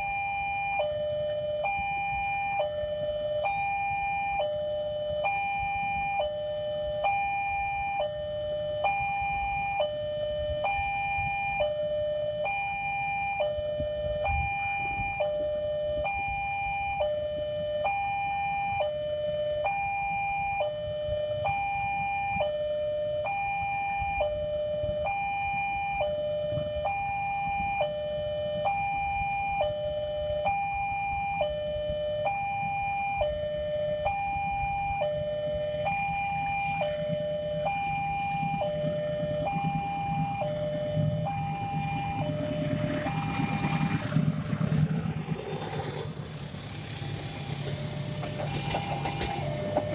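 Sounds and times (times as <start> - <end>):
two-tone crossing alarm chime: 0.0 - 49.9
low rumble: 37.9 - 49.9.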